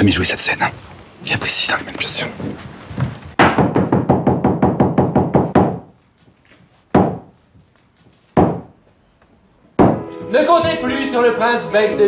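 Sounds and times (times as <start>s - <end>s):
wooden staff knocking on floor: 9.8s - 10.0s.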